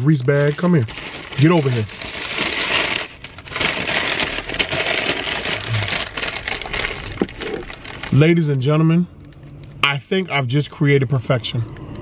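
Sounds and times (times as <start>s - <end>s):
paper bag crinkling: 0.0s - 8.6s.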